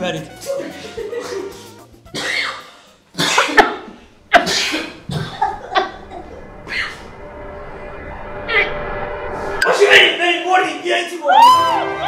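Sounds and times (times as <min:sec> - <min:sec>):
people coughing: 0:01.0 - 0:06.3.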